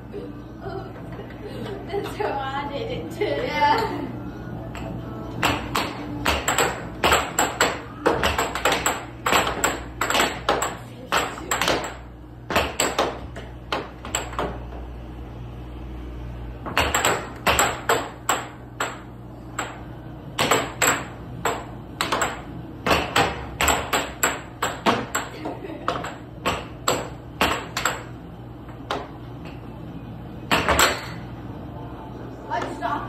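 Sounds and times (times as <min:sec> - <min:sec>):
plastic puck clacking off mallets: 0:20.4 - 0:25.3.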